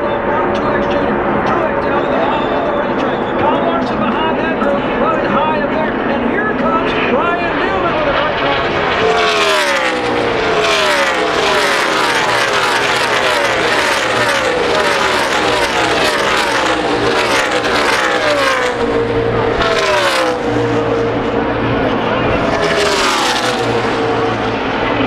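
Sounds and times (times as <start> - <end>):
race cars passing at speed: 0.0 - 25.0.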